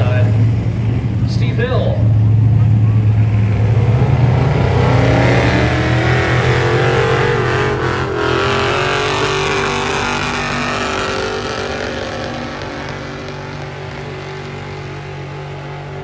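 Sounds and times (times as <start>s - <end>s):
diesel truck engine under load: 0.0s - 16.0s.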